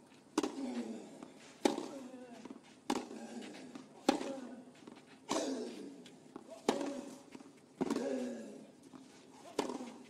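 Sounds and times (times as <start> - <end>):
tennis ball hit by rackets: 0.3 - 0.8, 1.6 - 8.2, 9.4 - 10.0.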